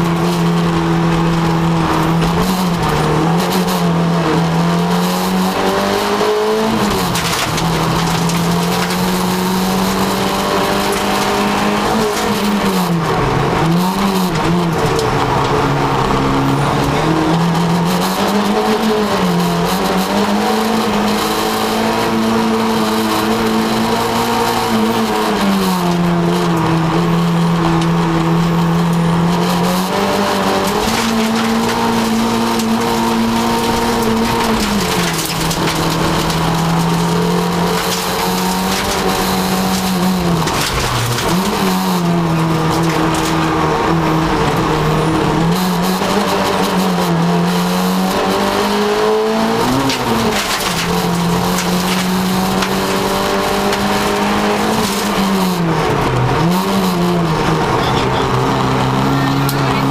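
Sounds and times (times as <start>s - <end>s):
rally car engine at full effort: 0.0s - 59.9s.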